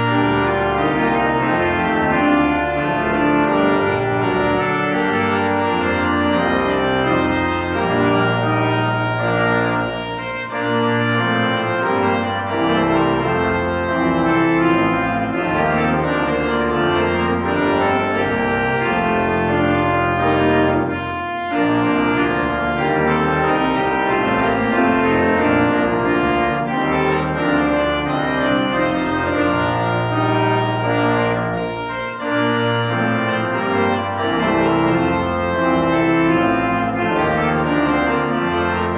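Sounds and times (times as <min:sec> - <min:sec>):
church organ chords: 0:00.0 - 0:38.9.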